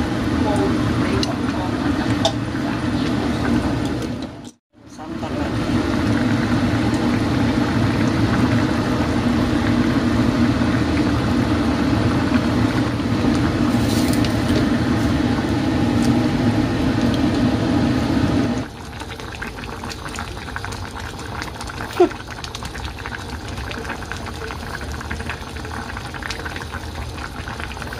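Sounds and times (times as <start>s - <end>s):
stew bubbling in pot: 0.0s - 27.9s.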